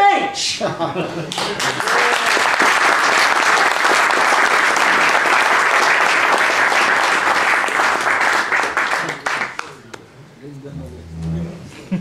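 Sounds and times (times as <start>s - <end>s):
audience applauding: 1.3s - 9.9s.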